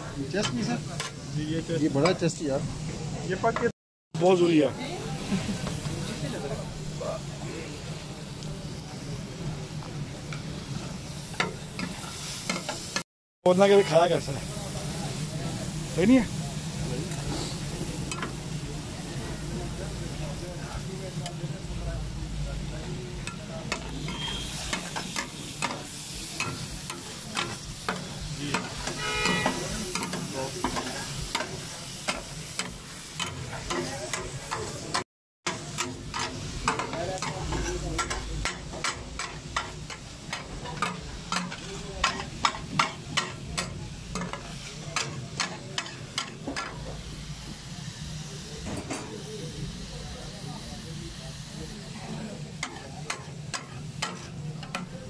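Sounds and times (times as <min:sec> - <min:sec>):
chicken sizzling on griddle: 0:00.0 - 0:55.0
metal spatulas scraping and clacking: 0:23.2 - 0:46.8, 0:52.6 - 0:55.0.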